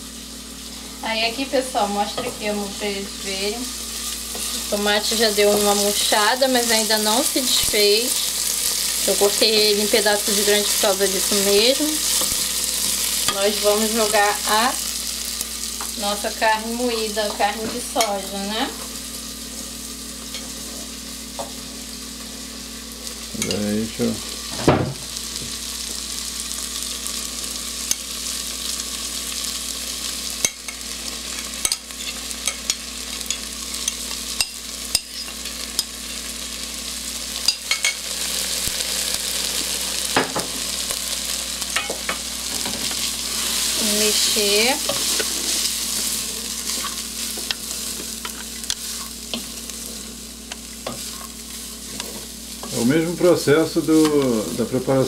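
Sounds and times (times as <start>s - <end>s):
food sizzling in a pan: 0.0s - 55.0s
spoon scraping a pan: 30.4s - 36.2s, 44.8s - 52.8s.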